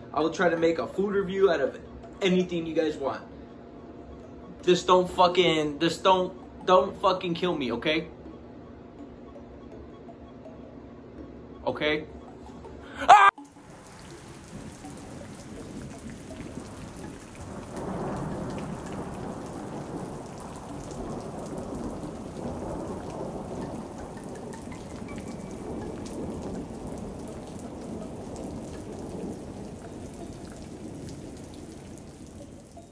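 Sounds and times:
steady rain hiss: 13.4 - 32.9
rolling thunder: 13.9 - 32.8.

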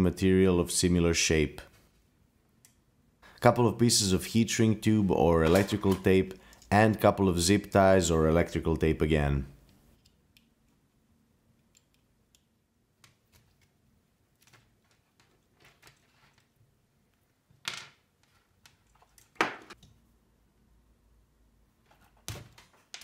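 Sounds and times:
hand tools handling noises: 5.2 - 6.8.

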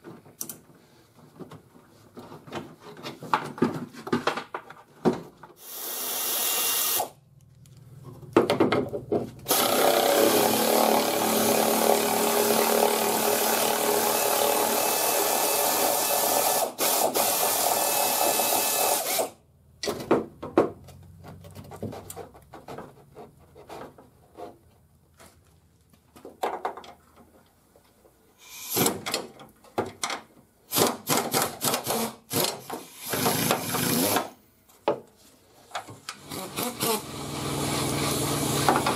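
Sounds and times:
pneumatic air ratchet spinning: 5.6 - 7.2, 14.4 - 19.4, 28.4 - 29.0, 30.7 - 34.3.

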